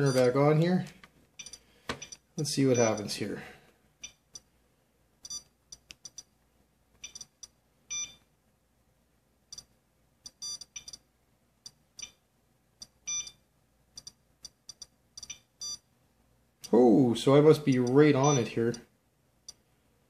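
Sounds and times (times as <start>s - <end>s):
geiger counter beeping: 0.0s - 0.4s, 7.0s - 8.2s, 13.1s - 13.4s, 17.6s - 18.6s
longer geiger counter beep: 0.0s - 0.4s, 7.9s - 8.2s, 13.1s - 13.4s, 17.7s - 18.6s.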